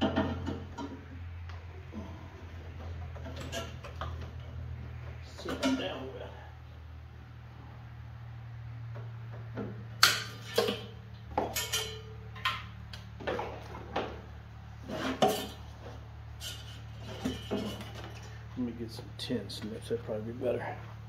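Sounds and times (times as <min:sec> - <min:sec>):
parts clattering and rattling: 0:00.0 - 0:06.1, 0:08.9 - 0:18.6
steady low hum: 0:00.0 - 0:21.0.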